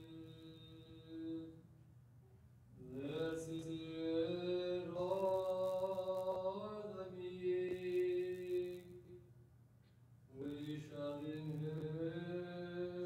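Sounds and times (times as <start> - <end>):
person chanting a hymn: 0.0 - 1.6, 2.8 - 9.0, 10.4 - 13.0.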